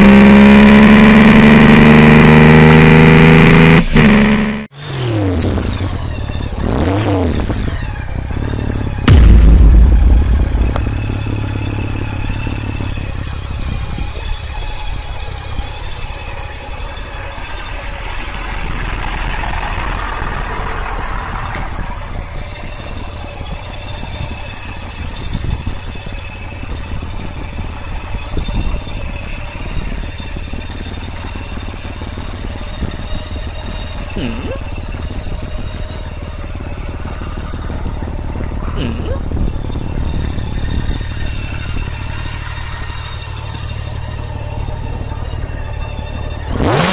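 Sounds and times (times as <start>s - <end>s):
motorcycle engine idling: 7.3s - 46.8s
brief rushing noise: 9.1s - 12.0s.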